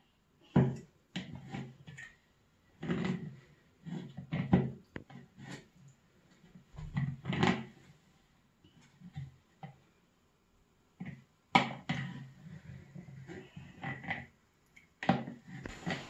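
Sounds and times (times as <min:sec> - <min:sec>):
spoon scraping in plastic jug: 0:15.1 - 0:16.0.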